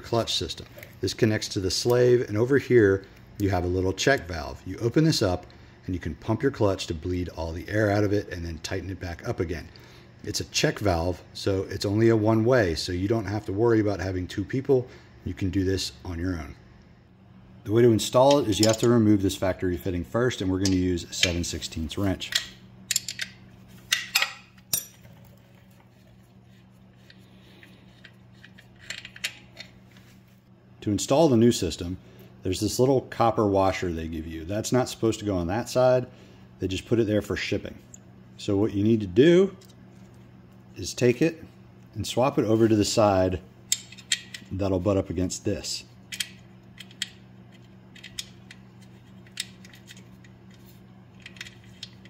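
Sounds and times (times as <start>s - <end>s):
faint steady hum: 0.0s - 52.0s
wrench metal clicks: 22.2s - 25.0s, 27.9s - 29.7s, 43.7s - 44.5s, 46.1s - 48.6s, 51.2s - 52.0s.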